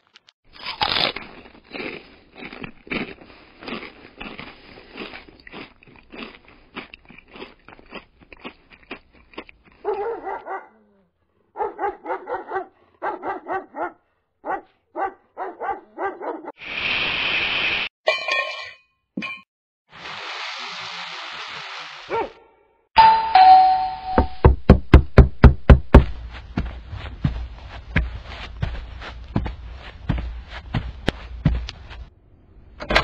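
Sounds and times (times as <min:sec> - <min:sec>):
cereal crunching: 0:00.0 - 0:09.8
dog barking: 0:09.8 - 0:16.6, 0:22.1 - 0:22.7.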